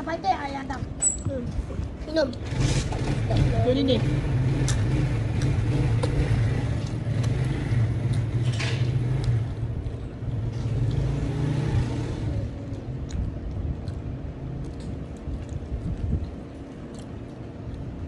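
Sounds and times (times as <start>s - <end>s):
vehicle engine running: 2.4s - 13.5s.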